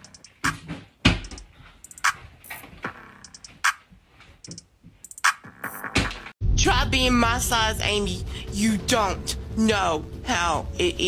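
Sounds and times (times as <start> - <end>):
hi-hat ticks: 0.0 - 0.5, 1.2 - 2.2, 4.4 - 5.4.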